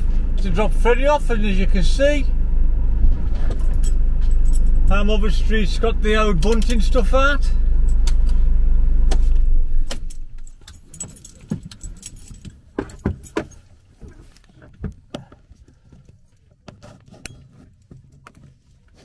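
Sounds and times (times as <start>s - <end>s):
car engine rumble: 0.0s - 16.7s
light jingling: 3.5s - 5.2s, 9.9s - 14.2s.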